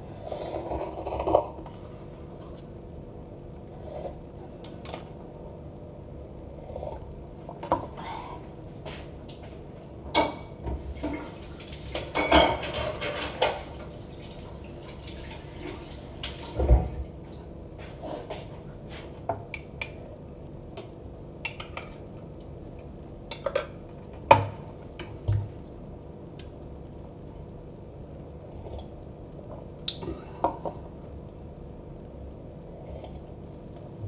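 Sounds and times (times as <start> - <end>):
dishes and cutlery clinking: 12.0 - 13.7.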